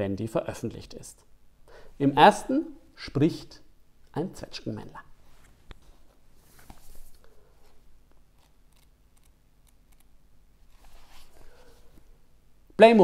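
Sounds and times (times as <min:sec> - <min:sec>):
book pages leafed through: 0:05.4 - 0:07.8, 0:10.7 - 0:12.0
paper rustling: 0:05.4 - 0:07.8, 0:10.7 - 0:12.0.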